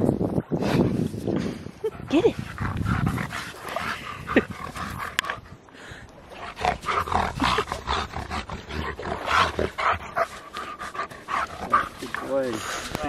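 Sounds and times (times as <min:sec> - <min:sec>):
dog paws scraping sand: 0:08.5 - 0:13.0.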